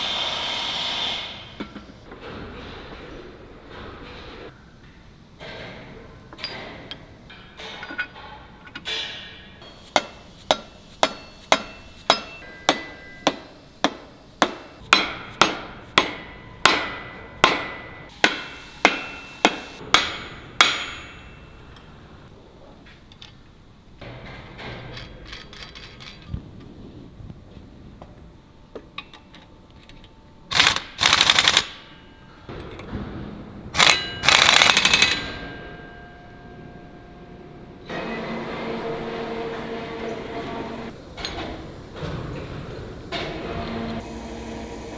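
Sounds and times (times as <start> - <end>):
hammer striking steel: 8.9 - 21.9.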